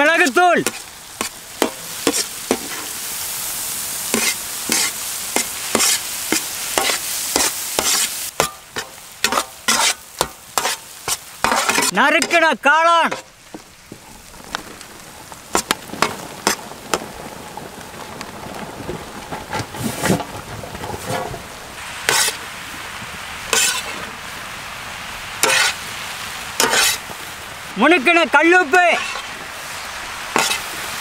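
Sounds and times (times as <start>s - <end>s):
mushrooms sizzling in hot oil: 0.0s - 19.2s, 21.5s - 31.0s
metal ladle scraping pan: 0.6s - 3.0s, 4.1s - 12.4s, 13.1s - 14.1s, 19.7s - 21.4s, 22.0s - 22.4s, 23.5s - 24.1s, 25.4s - 25.8s, 26.6s - 27.1s, 29.0s - 29.4s, 30.3s - 30.9s.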